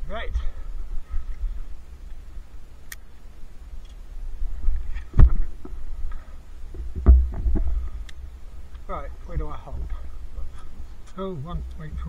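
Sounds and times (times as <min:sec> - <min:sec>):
sharp knocks: 0:06.8 - 0:07.8.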